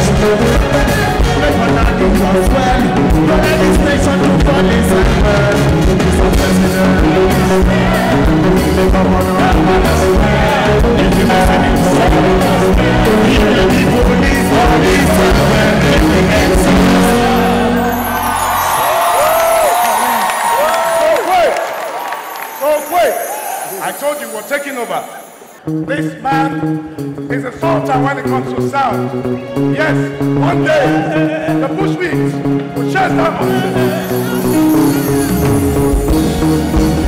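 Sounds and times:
man singing into a microphone: 0.0 - 18.2
band with steady beat: 0.0 - 20.3.

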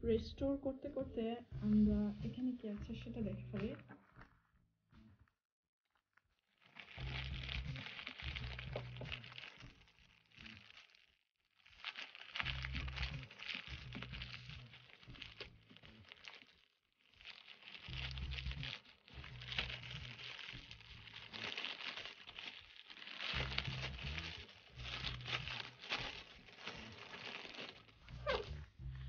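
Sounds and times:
low handling rumble: 0.0 - 4.0, 23.2 - 29.0
plastic bag crinkling: 1.6 - 5.3, 6.4 - 28.9.

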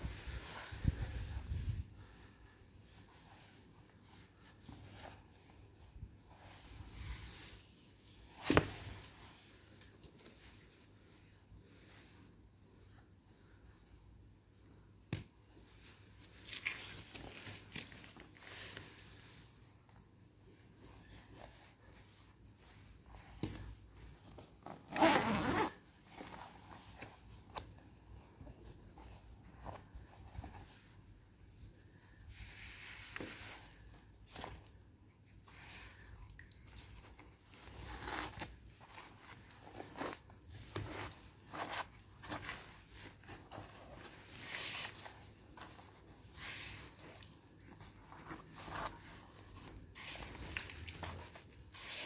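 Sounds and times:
soft scrapes and rustles: 0.0 - 14.0, 15.5 - 52.0
boot zipper rasp: 24.9 - 25.8.

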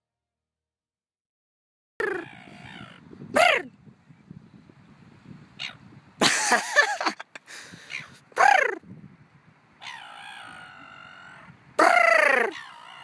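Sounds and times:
gulls squawking: 2.0 - 3.7, 5.6 - 5.8, 7.7 - 8.8, 9.8 - 13.0.

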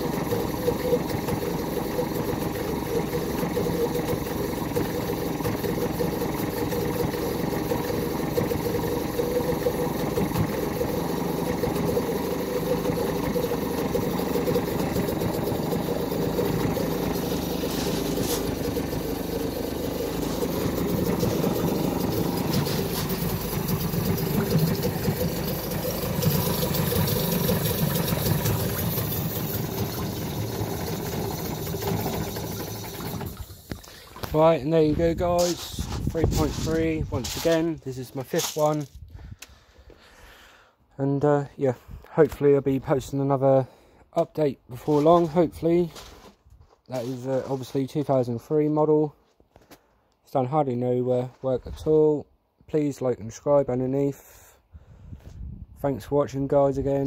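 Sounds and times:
outboard engine running: 0.0 - 38.6.

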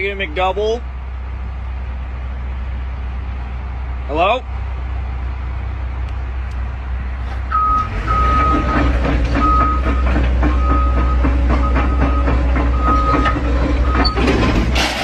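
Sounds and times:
engine rumble: 0.0 - 15.0
vehicle reversing alarm beeping: 7.5 - 14.4.

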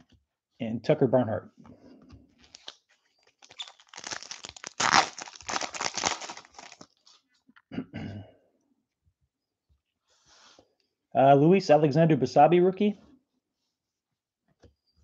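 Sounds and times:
foil wrapper crinkling: 2.4 - 7.1.

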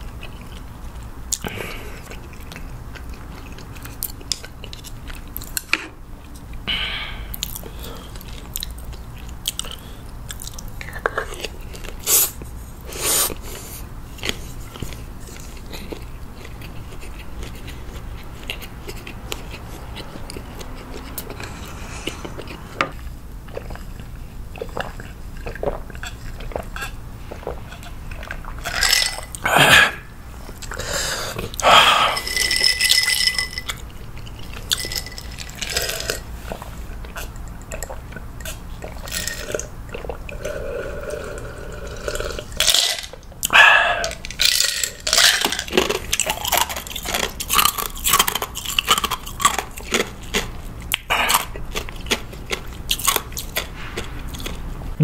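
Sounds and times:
wet chewing and mouth smacks: 7.3 - 12.5, 14.2 - 29.4, 33.7 - 40.6
swallowing a drink: 28.9 - 32.7, 43.5 - 44.2.

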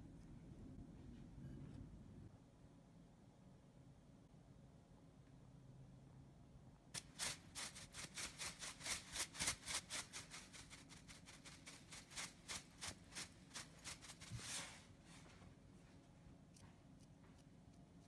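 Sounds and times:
salt shaker rattling: 7.0 - 14.6.

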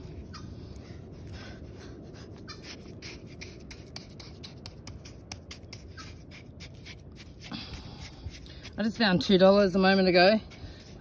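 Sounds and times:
low steady rush: 0.0 - 11.0
pinpointer scraping through wet sand: 2.4 - 11.0.

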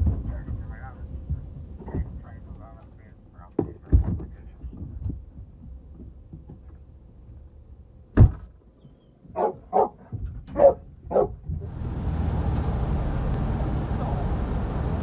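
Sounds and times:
sharp thump: 8.2 - 8.5
dog barking: 9.3 - 11.4
steady rushing noise: 11.6 - 15.0.

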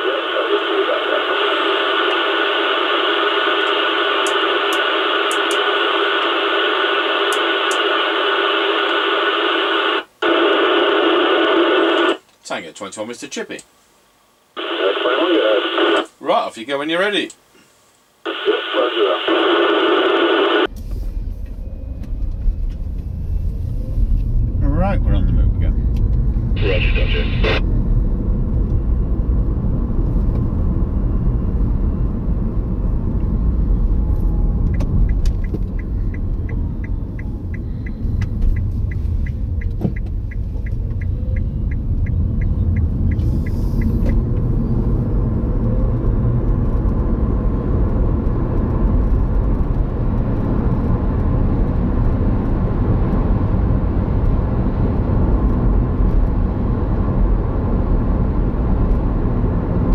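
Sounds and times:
car road and engine rumble: 20.7 - 59.9
light regular ticking: 34.7 - 43.2.

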